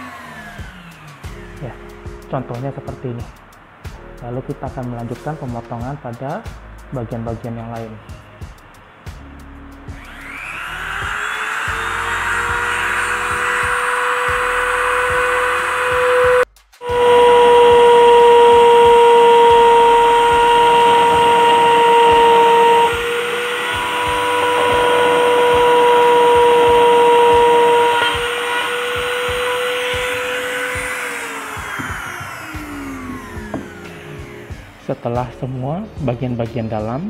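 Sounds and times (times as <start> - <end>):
rotary grinder cutting plastic pipe: 10.0 - 35.9.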